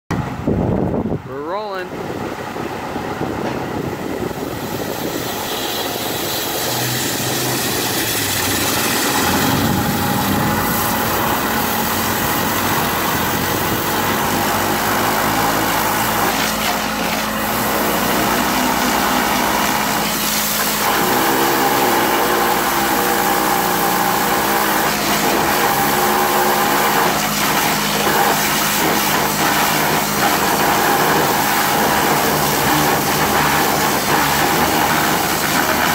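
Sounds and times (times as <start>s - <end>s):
sewer jetter pump running: 0.1s - 35.9s.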